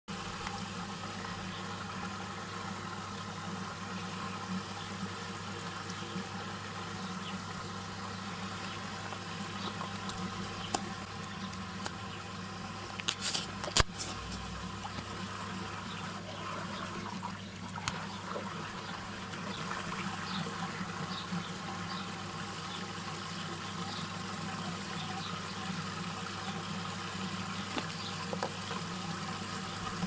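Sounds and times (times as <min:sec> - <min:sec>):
motor hum: 0:00.1 - 0:30.0
swirling water: 0:00.1 - 0:30.0.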